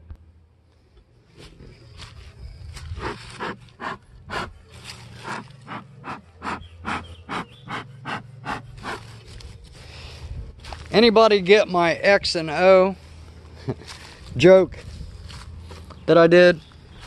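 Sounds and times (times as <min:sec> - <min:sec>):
person breathing hard and fast: 0:02.1 - 0:10.6, 0:13.0 - 0:15.9.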